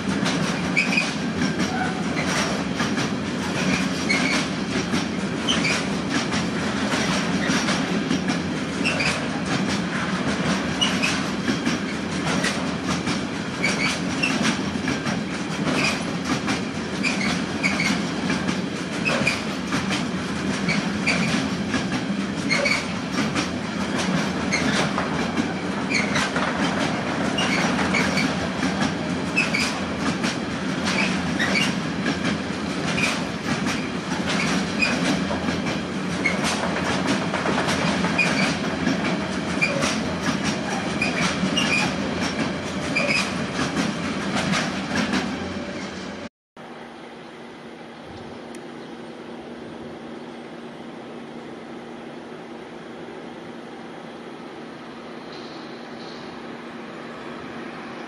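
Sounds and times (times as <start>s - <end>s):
train wheels rumbling on rail: 0.0s - 58.0s
short high squeaks: 42.9s - 43.4s.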